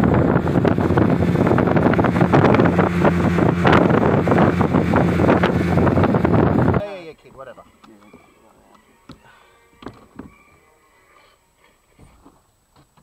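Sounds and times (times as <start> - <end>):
outboard motor drone: 0.0 - 6.9
wind noise on microphone: 0.0 - 7.0
water rushing along hull: 0.0 - 8.4.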